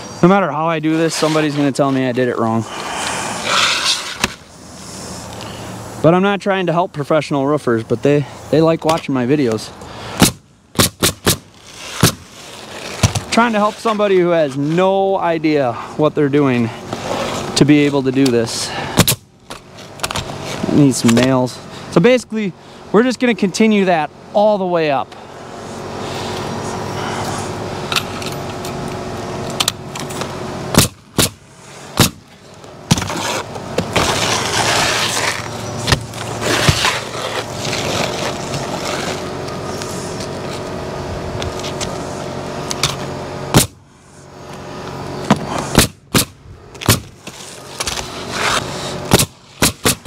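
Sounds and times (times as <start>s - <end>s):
motor hum: 9.7s - 50.0s
nail gun shots: 10.2s - 12.2s, 19.0s - 19.2s, 30.7s - 31.4s, 32.0s - 32.2s, 43.5s - 43.8s, 45.7s - 47.1s, 49.1s - 50.0s.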